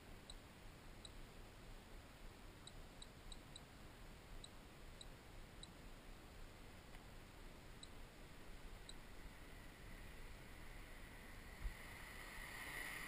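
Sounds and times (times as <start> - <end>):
faint high-pitched ticks: 0.0 - 1.6, 2.2 - 5.9, 6.7 - 8.1, 8.7 - 10.2
faint rumble and hiss: 0.0 - 13.0.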